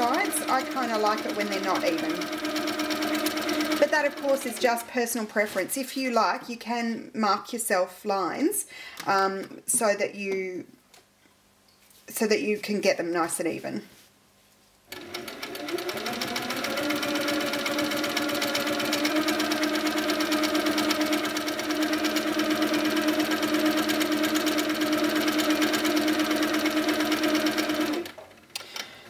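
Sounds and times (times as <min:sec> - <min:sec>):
quilting machine needle ticking: 0:00.0 - 0:04.9.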